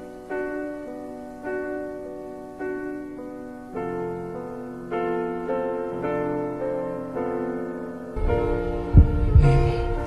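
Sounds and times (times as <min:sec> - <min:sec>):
slow struck chords: 0:08.2 - 0:10.0.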